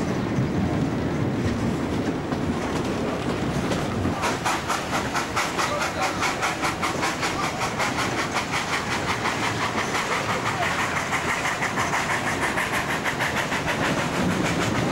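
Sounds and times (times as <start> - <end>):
train rumble: 0.0 - 14.9
steam locomotive exhaust beat: 0.3 - 14.9.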